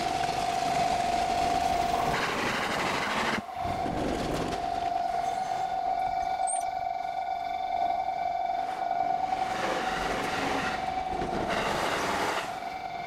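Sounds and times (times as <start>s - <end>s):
train passing: 3.4s - 13.0s
level crossing alarm ringing: 4.5s - 13.0s.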